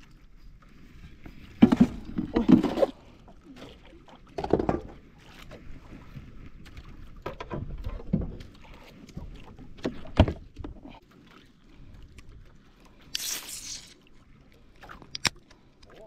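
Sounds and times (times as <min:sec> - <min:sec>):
boat background noise: 0:00.0 - 0:16.0
knocks on boat: 0:04.4 - 0:05.0.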